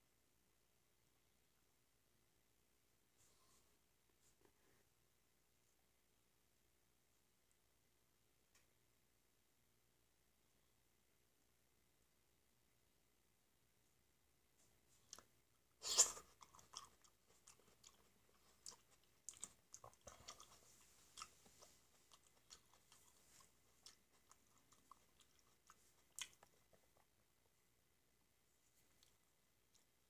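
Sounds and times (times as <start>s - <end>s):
soft wet chewing: 14.8s - 27.9s, 28.6s - 30.0s.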